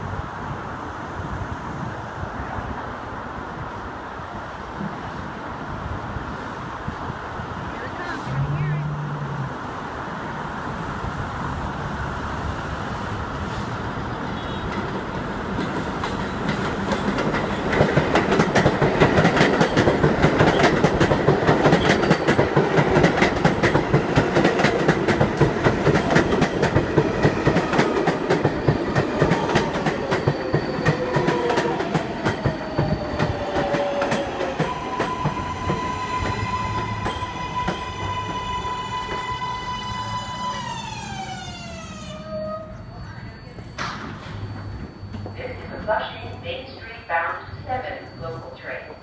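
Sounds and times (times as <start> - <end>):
train humming at a stop: 0.0 - 49.0
subway train wheels clacking: 9.6 - 49.0
train brakes whining: 26.0 - 45.8.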